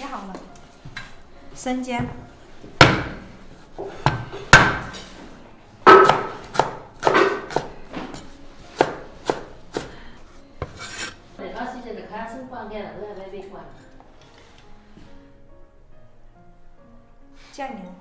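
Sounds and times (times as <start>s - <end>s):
cleaver chopping on wooden board: 2.8s - 3.2s, 4.0s - 5.0s, 5.8s - 9.9s
blade scraping cutting board: 10.6s - 11.2s.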